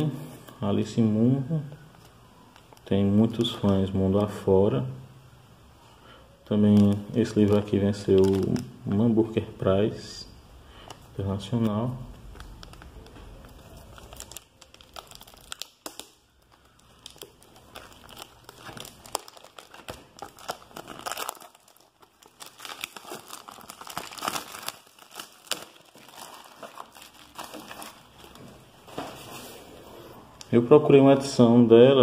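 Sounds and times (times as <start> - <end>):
packaging crinkling and tearing: 6.6 - 8.8, 12.0 - 29.4.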